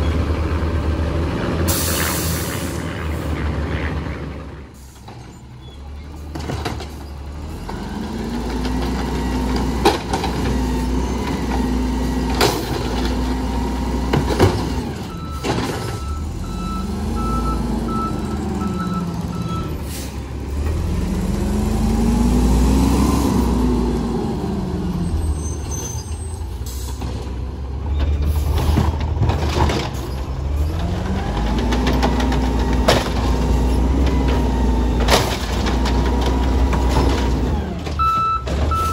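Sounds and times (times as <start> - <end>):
garbage truck engine revving: 6.0 - 38.9
backup beeps: 15.1 - 19.8, 38.0 - 38.9
carts knocking and banging: 28.0 - 38.9.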